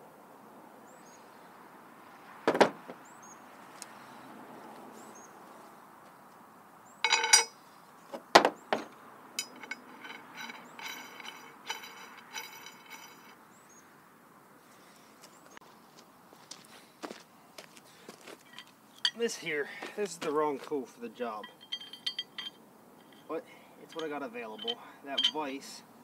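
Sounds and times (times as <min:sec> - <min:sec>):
sharp knocks on metal: 0:02.5 - 0:03.0
metal clinks: 0:07.0 - 0:07.6, 0:08.8 - 0:13.4, 0:18.5 - 0:19.3, 0:21.3 - 0:25.7.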